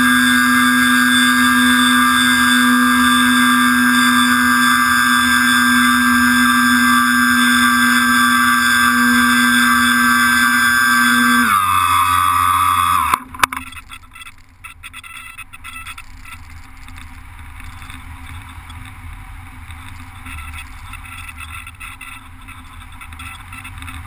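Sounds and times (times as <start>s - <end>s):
electric motor and propeller whine: 0.0s - 13.9s.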